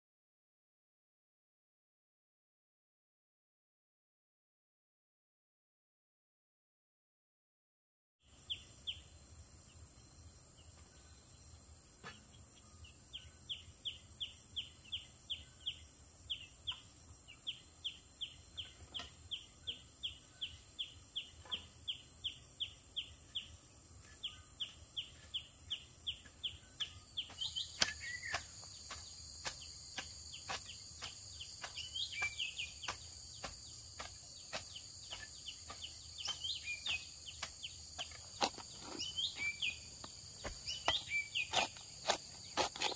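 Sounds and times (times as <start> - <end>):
high insect drone: 8.2 - 42.9
other birds calling: 24.2 - 42.9
hoe chopping into soil: 27.2 - 42.9.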